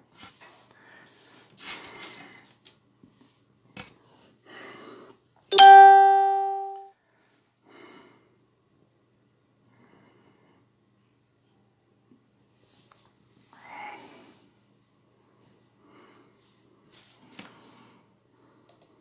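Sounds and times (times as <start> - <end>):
bright chime: 5.5 - 6.9.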